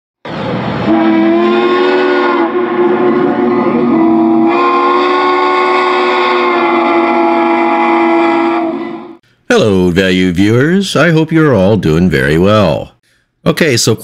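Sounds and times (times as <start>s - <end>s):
rush of noise: 0.2s - 1.5s
steam locomotive chime whistle: 0.8s - 9.2s.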